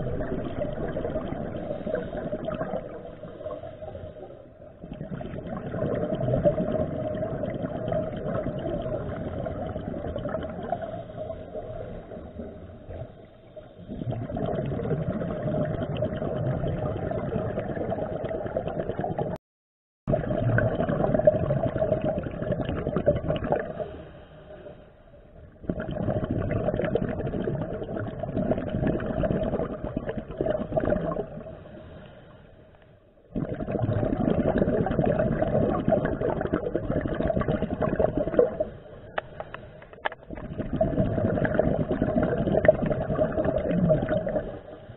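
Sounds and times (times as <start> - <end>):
diver breathing through a regulator: 0.0 - 4.6, 31.4 - 32.8
exhaled bubbles rushing: 0.0 - 19.4, 20.1 - 24.0, 25.4 - 31.8, 33.2 - 39.2, 39.9 - 44.9.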